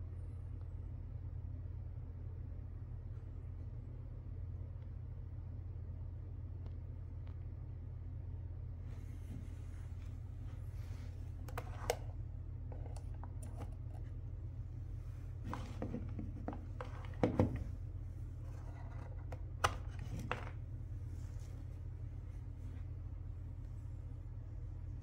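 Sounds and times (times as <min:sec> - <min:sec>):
steady low hum: 0:00.0 - 0:25.0
cables and plastic adapter handled: 0:11.4 - 0:14.2, 0:15.4 - 0:17.7, 0:18.4 - 0:20.6.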